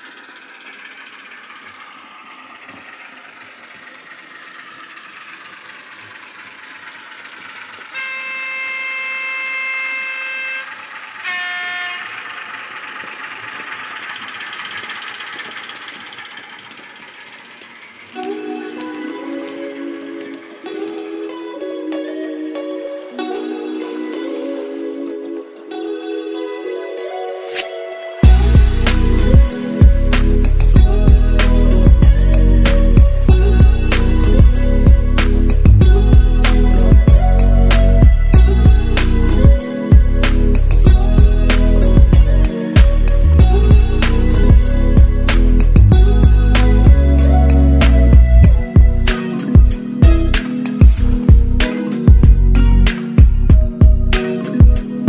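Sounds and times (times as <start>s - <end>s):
model diesel engine sound: 0.0s - 20.7s, 28.2s - 54.9s
instrumental background music: 18.1s - 55.0s.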